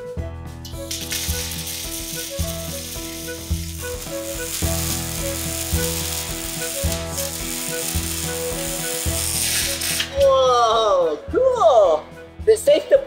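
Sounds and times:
music with pulsing bass: 0.0 - 12.7
welding arc sizzling: 0.7 - 10.4.

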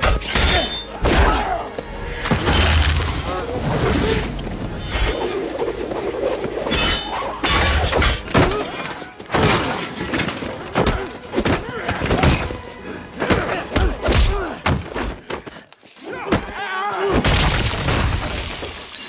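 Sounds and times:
objects crashing and breaking: 17.1 - 19.0.

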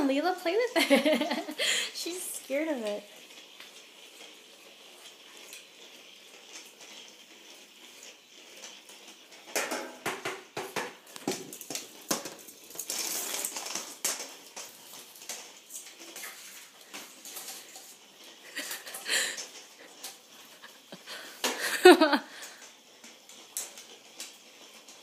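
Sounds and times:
toy ball rolling and clacking: 2.8 - 21.7.

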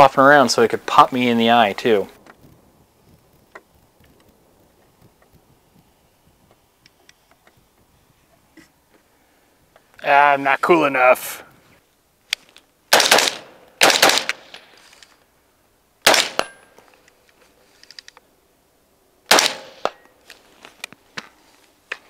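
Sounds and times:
rifle shots: 12.9 - 14.7, 16.0 - 16.6, 19.3 - 20.0.

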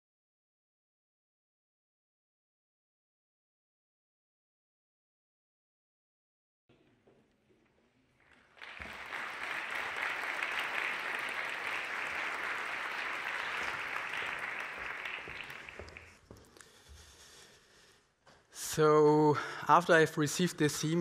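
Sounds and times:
audience applauding: 8.2 - 16.4.

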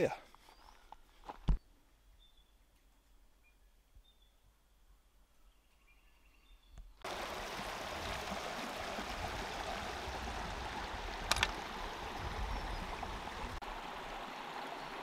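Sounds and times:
flowing creek rushing: 7.0 - 15.0
brief clicks: 11.2 - 11.6.

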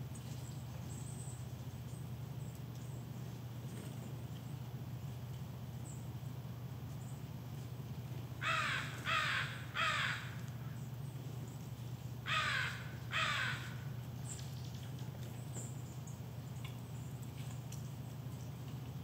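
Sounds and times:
steady low hum: 0.0 - 19.0
crow cawing: 8.4 - 10.7, 12.2 - 13.9.

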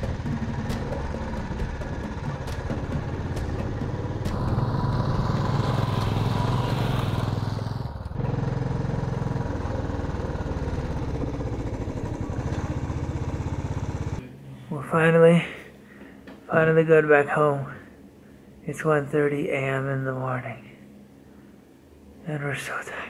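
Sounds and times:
motorcycle engine running: 0.0 - 14.2.

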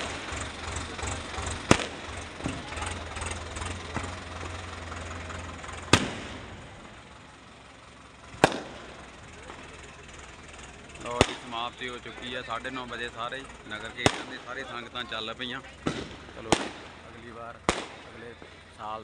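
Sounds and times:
fireworks pops and crackling: 0.0 - 3.0, 5.8 - 6.6, 8.3 - 9.7, 11.0 - 11.9, 13.9 - 14.6, 15.7 - 19.0
fireworks bangs: 0.0 - 4.6, 5.7 - 7.0, 8.3 - 9.8, 11.0 - 12.2, 13.8 - 19.0.

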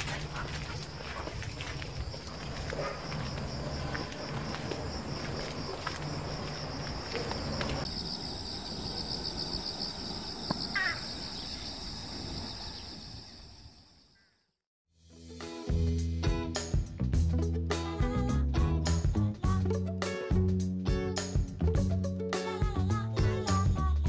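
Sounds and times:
light footsteps: 0.0 - 7.9
insects buzzing: 0.4 - 14.2.

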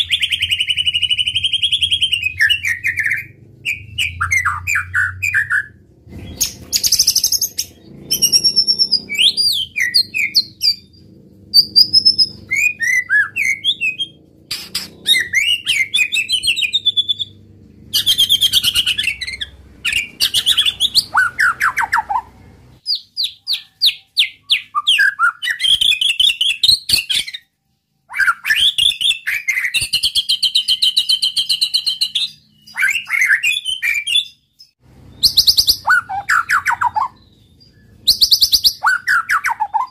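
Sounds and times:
bird singing whistled phrases: 11.6 - 17.3, 18.0 - 27.5, 28.1 - 34.4, 35.1 - 39.9.

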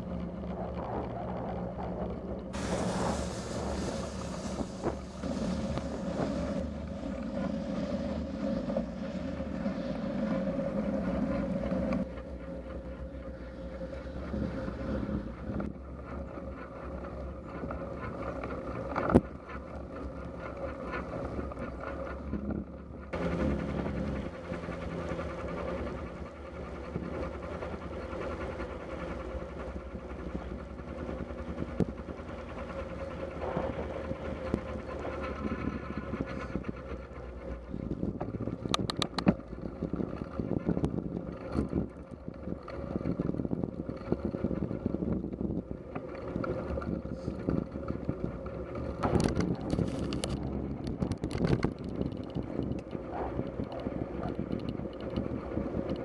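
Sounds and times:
wind rushing over microphone: 0.0 - 12.1, 13.7 - 56.0
tyres on wet tarmac: 0.0 - 56.0
sharp clicks and rattles: 15.4 - 56.0.

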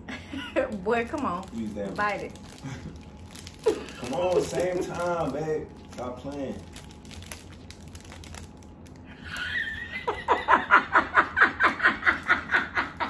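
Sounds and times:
woman laughing hard: 9.2 - 13.0.

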